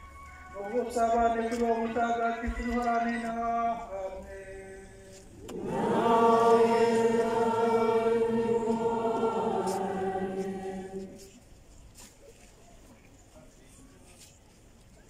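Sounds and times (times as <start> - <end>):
congregation chanting: 5.4 - 11.4.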